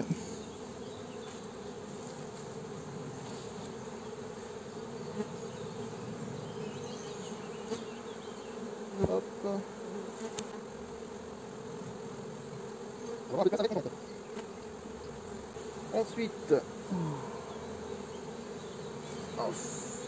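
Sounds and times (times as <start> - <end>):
bees buzzing: 0.0 - 20.0.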